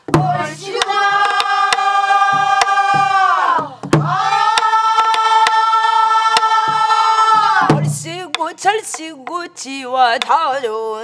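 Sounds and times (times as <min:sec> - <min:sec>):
barrel drums struck: 0:00.0 - 0:05.6, 0:06.3 - 0:08.2
group singing in unison: 0:00.1 - 0:08.5.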